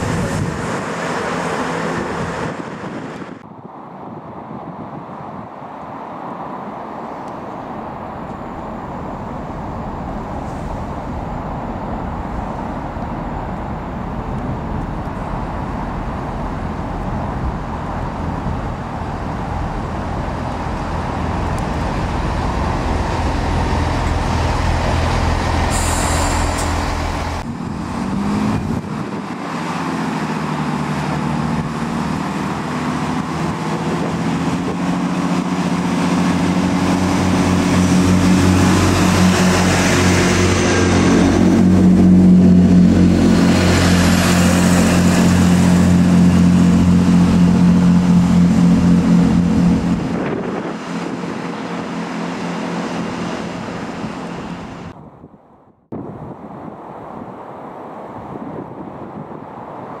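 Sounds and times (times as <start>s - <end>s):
diesel engines humming: 0.0s - 60.0s
diesel train arriving: 17.7s - 28.8s, 34.8s - 55.0s
high squeal: 25.5s - 27.4s.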